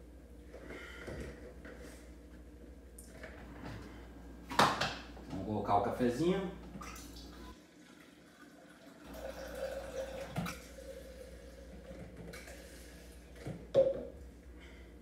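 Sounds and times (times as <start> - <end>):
coffee pouring into a jar: 7.8 - 13.2.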